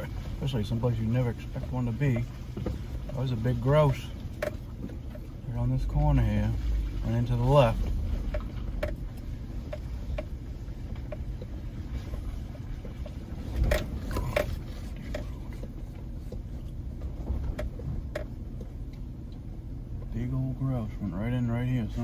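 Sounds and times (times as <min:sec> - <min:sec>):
vehicle engine rumbling: 0:00.0 - 0:22.0
light ticks: 0:08.3 - 0:20.2.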